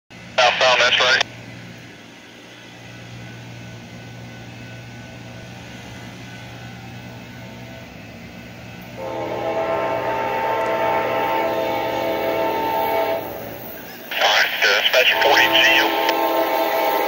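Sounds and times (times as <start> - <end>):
diesel train rumbling: 0.1 - 17.0
locomotive air horn chord: 9.0 - 13.6, 15.1 - 17.0.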